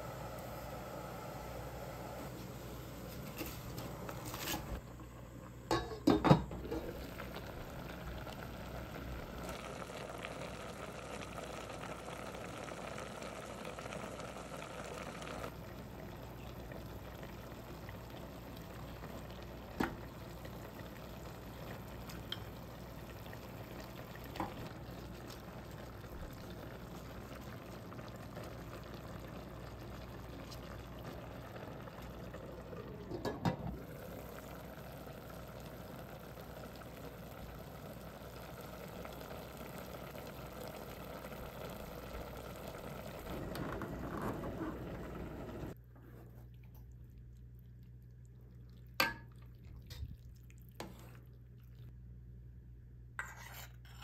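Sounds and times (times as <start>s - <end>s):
lid knocking on pot: 5.7s - 6.8s
utensils clinking against pot: 5.7s - 6.8s
broth bubbling: 6.6s - 45.8s.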